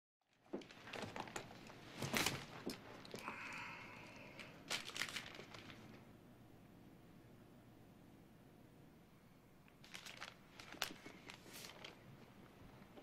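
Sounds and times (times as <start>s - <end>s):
paper envelopes rustling: 4.2s - 6.0s, 9.7s - 13.0s.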